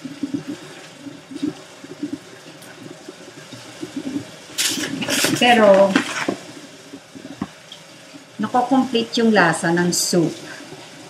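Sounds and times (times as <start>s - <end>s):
tap water running onto vegetables: 0.0s - 8.8s
vegetables clattering: 4.6s - 6.4s.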